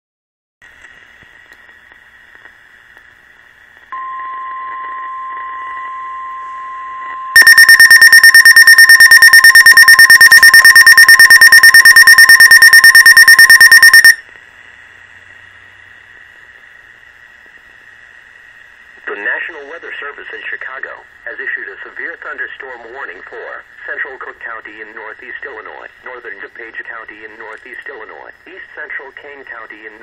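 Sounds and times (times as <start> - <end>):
steady warning alarm tone: 4.0 - 14.2
rapid electronic beeping alarm: 7.2 - 14.2.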